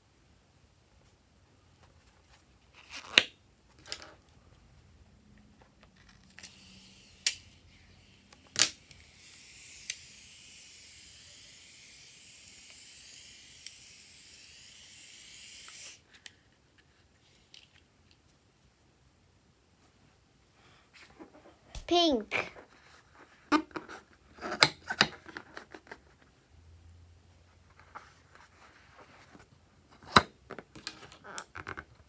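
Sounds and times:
foam hissing from balloon: 8.9s - 16.1s.

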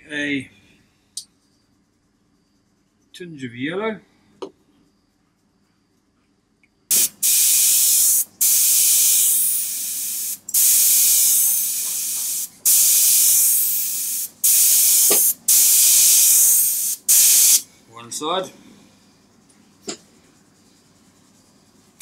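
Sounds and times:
airbrush spraying paint: 6.9s - 17.6s, 19.6s - 22.0s.

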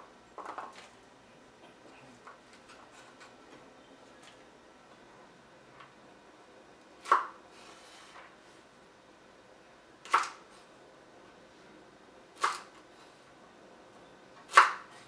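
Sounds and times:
knife chopping on wooden board: 14.5s - 15.0s.

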